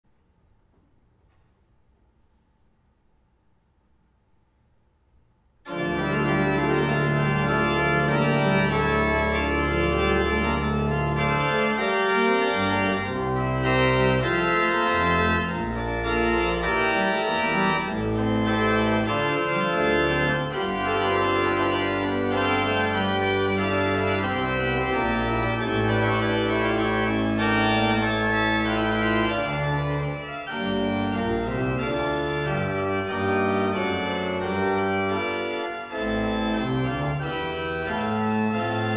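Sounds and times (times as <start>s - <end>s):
pipe organ chords: 5.6s - 38.9s.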